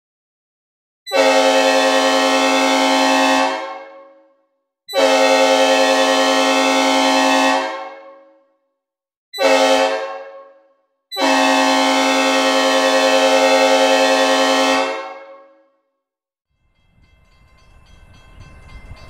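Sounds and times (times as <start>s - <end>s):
train air horn blasts: 1.1s - 8.5s, 9.4s - 15.8s.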